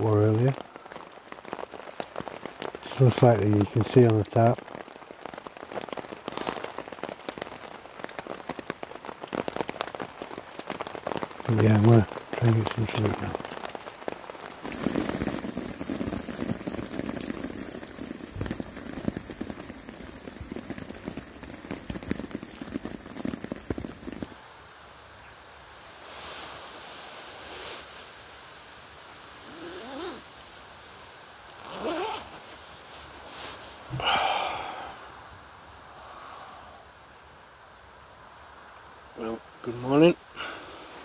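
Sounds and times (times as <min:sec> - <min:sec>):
heavy rain on a tarp: 0:00.0 - 0:24.9, 0:25.6 - 0:41.0.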